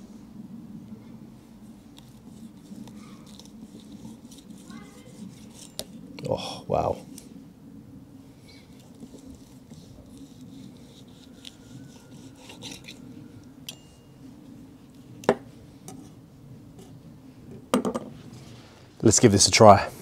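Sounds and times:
knife sawing through roast skin: 2.1s - 5.9s, 8.8s - 13.0s.

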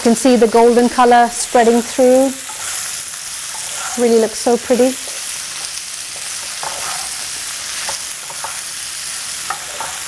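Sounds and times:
potatoes sizzling in oil: 0.0s - 10.0s
wooden spatula scraping pan: 2.4s - 4.2s, 6.2s - 8.6s.

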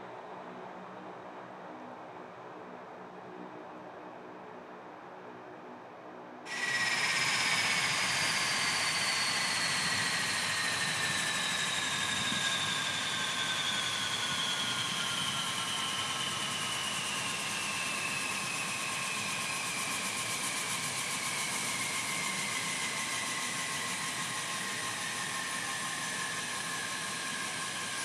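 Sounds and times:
high turbine whine: 6.5s - 28.0s
turboprop engines droning: 6.5s - 28.0s.

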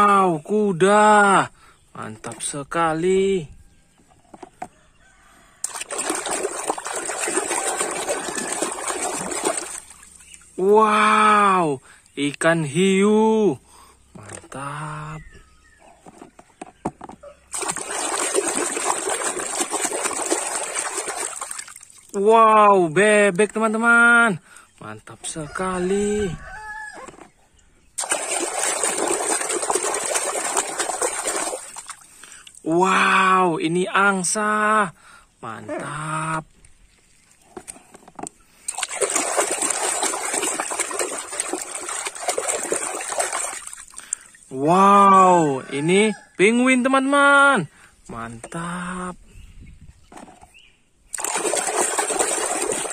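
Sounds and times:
hand splashing water in tub: 5.6s - 10.3s, 17.5s - 22.2s, 28.0s - 32.6s, 38.6s - 44.3s, 51.1s - 52.9s.

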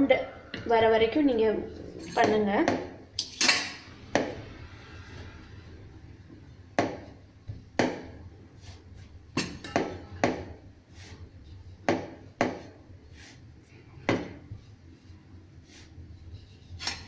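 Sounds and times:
rolling pin rolling dough: 5.1s - 17.0s
wooden knocks of rolling pin: 6.8s - 8.2s, 9.4s - 10.6s, 11.8s - 12.7s, 14.0s - 14.5s.

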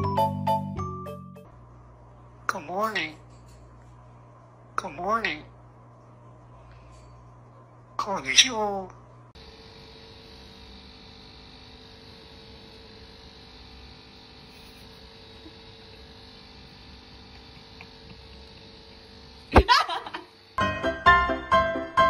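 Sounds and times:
piano music: 0.0s - 1.5s, 20.6s - 22.0s
steady electrical hum: 1.4s - 20.6s.

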